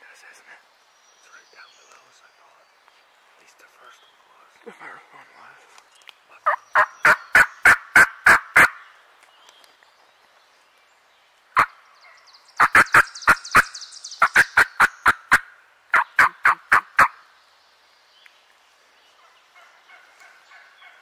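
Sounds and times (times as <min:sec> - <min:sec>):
wild turkey yelping: 0:06.4 - 0:08.8, 0:12.6 - 0:13.6, 0:14.2 - 0:17.2.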